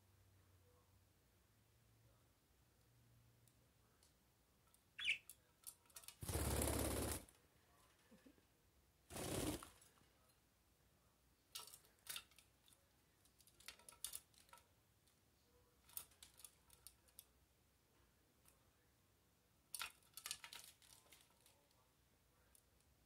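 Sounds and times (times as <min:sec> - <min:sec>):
bird wings whirring: 0:06.2 - 0:07.3, 0:09.1 - 0:09.8.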